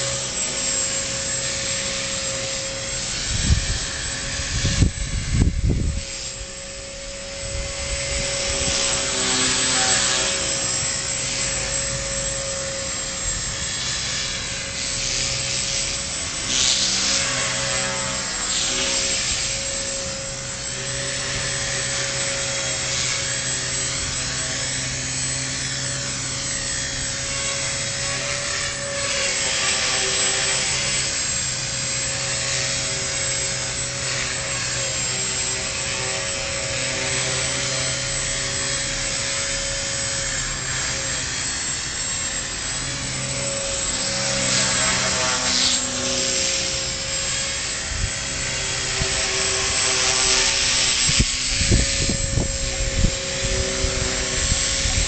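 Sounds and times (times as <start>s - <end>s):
model helicopter whine: 0.0s - 55.0s
wind noise on microphone: 2.1s - 25.1s, 47.3s - 55.0s.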